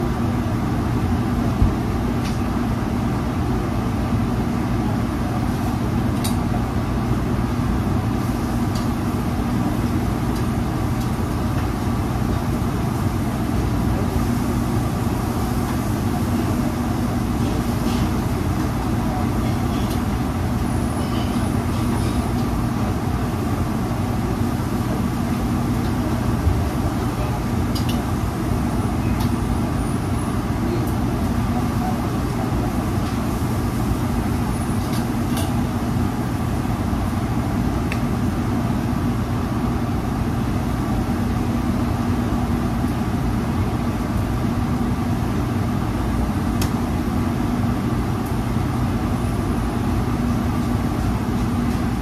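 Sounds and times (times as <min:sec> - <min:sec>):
exhaust hood fan drone: 0:00.0 - 0:52.0.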